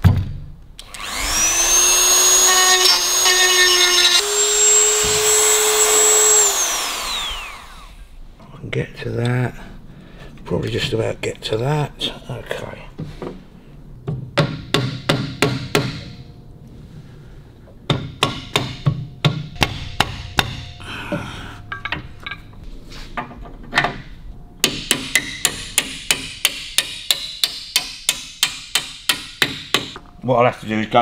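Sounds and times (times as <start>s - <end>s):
hammer tapping on metal: 17.9s - 22.4s, 24.6s - 30.0s
heavy knock: 17.9s - 22.6s.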